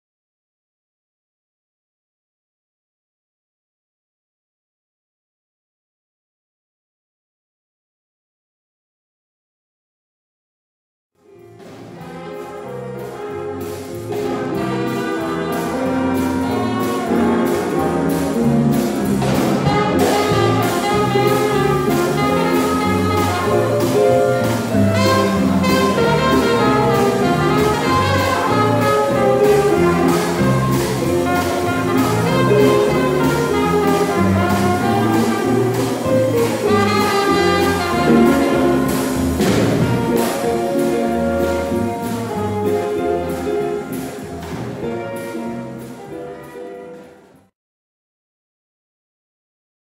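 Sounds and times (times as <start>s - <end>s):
jazz band playing: 11.2s - 47.5s.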